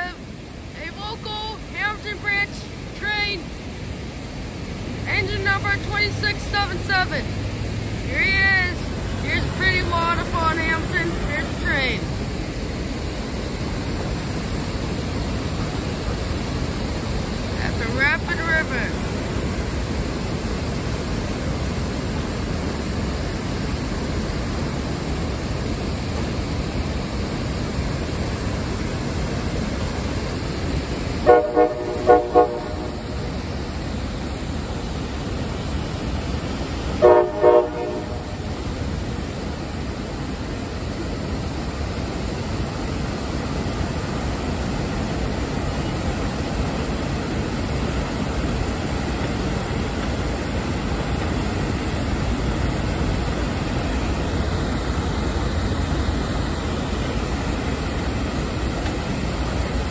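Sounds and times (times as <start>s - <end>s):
train running: 0.0s - 59.9s
waterfall rushing: 0.0s - 59.9s
locomotive horn blasts: 31.2s - 33.2s, 37.0s - 38.4s.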